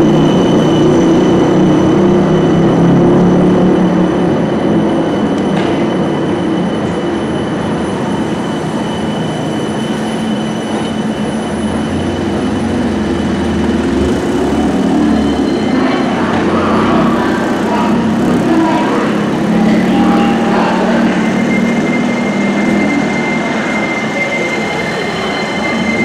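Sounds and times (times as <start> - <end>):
tram wheels rumbling on rail: 0.0 - 26.0
thin high squeal: 14.4 - 26.0.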